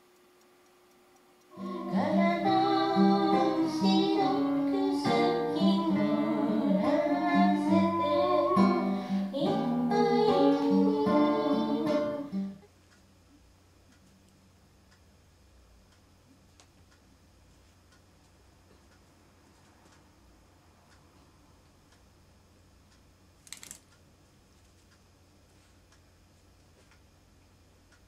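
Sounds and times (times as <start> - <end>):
acoustic guitar folk song: 1.6 - 12.6.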